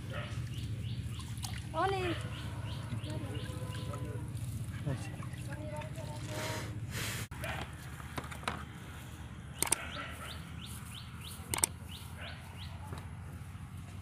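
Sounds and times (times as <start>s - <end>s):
low outdoor rumble: 0.0s - 14.0s
bird chirping: 0.3s - 4.2s, 9.6s - 12.9s
sharp clicks: 9.6s - 9.9s, 11.5s - 11.8s.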